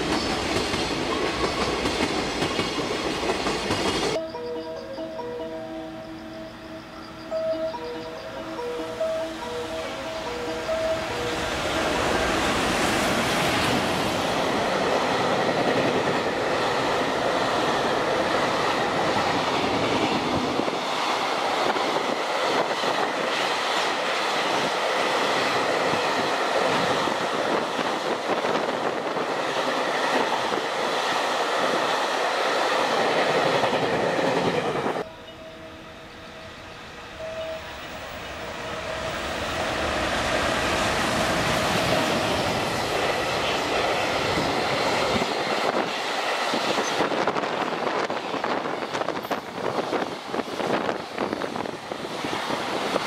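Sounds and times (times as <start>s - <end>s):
freight train wagons passing: 0.0s - 53.0s.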